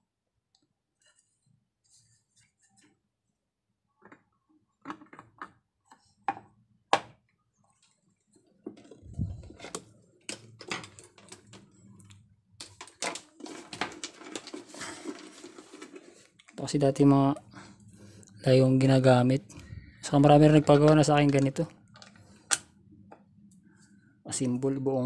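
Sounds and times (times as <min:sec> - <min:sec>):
rustling and scraping: 0:07.7 - 0:11.7, 0:12.6 - 0:16.6.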